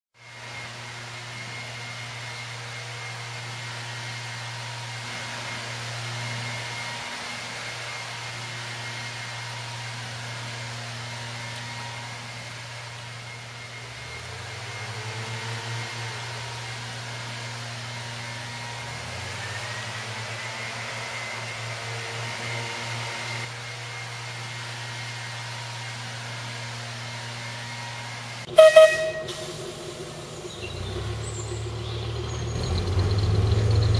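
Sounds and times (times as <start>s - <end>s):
diesel engine idling: 28.4s - 33.9s
locomotive horn toot: 28.5s - 30.0s.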